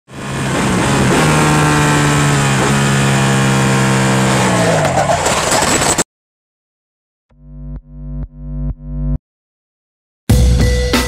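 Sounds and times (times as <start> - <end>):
motorcycle engine at high revs: 0.1 - 4.6.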